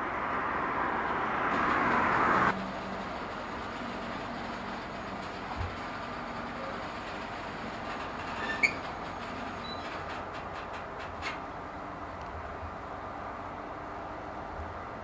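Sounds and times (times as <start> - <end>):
freight wagons rolling with rumble: 1.5 - 12.5
sharp metallic squeak: 7.9 - 10.1.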